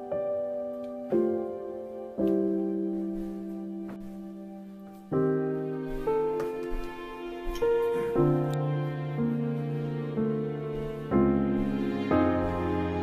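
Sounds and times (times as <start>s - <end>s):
slow piano chords: 0.0s - 13.0s.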